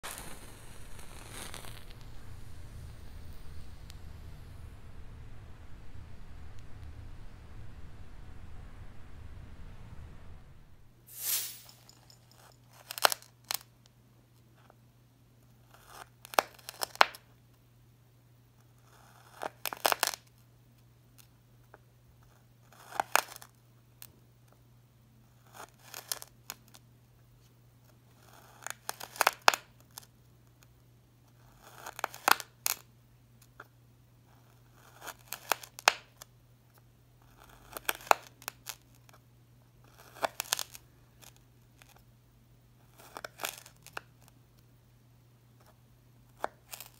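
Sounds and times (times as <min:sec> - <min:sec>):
knife cutting crunchy sand: 0:11.1 - 0:11.7.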